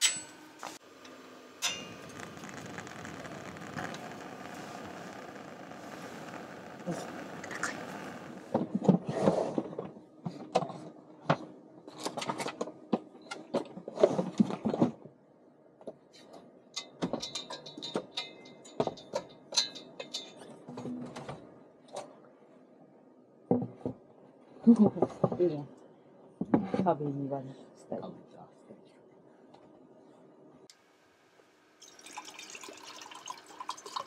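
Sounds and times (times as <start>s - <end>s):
thin high ringing: 0.0s - 0.8s, 1.6s - 8.5s
objects clicking and rattling: 16.8s - 22.1s.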